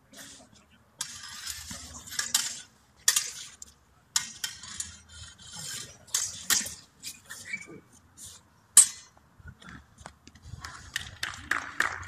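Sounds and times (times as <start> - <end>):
sabres clashing: 1.0 - 7.7, 8.7 - 9.2.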